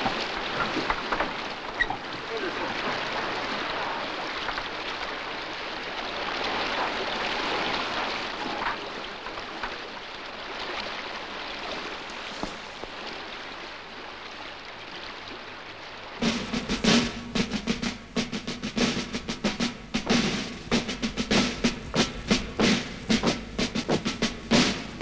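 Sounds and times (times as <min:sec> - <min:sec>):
sea water rushing and splashing: 0:00.0 - 0:25.0.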